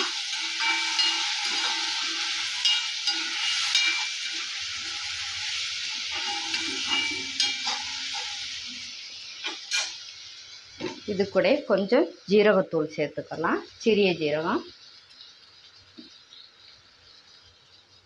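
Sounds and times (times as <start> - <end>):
metal ladle scraping pan: 0.0 - 8.4
potatoes sizzling in oil: 0.0 - 18.0.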